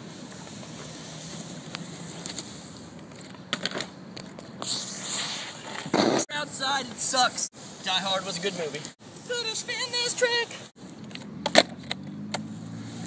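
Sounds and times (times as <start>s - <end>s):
skateboard wheels rolling on concrete: 0.0s - 13.0s
brief hiss: 4.6s - 5.8s.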